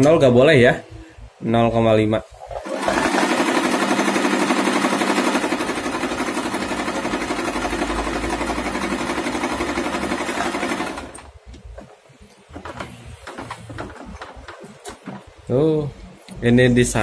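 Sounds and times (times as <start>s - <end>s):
sewing machine stitching: 2.5s - 11.3s.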